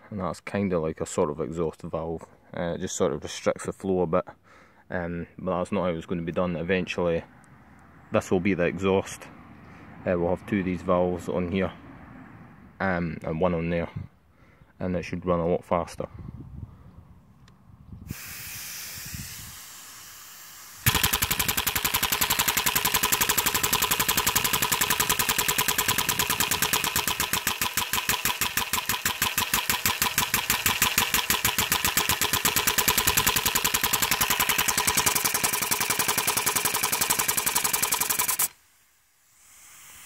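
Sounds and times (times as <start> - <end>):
air hissing: 18.0 - 35.9, 37.0 - 40.0.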